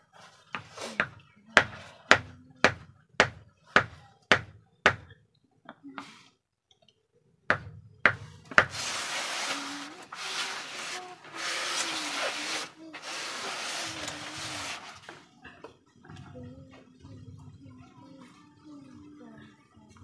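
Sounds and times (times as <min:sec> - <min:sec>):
rough scraping hiss: 0:08.7 - 0:15.2.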